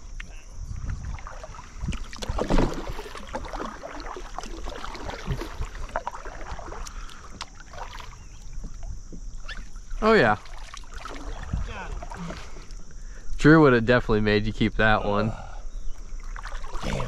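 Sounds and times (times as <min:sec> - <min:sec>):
kayak paddle splashing in water: 0:00.8 - 0:12.8, 0:16.2 - 0:16.9.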